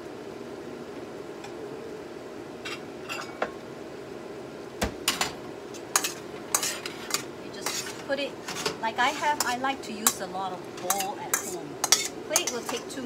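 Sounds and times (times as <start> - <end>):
range hood fan hum: 0.0 - 13.0
ceramic dishes clinking: 2.7 - 3.6.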